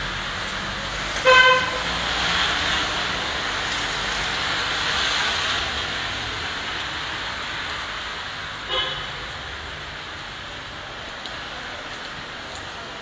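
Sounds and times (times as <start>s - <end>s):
car horn toot: 1.2s - 1.8s, 8.7s - 9.1s.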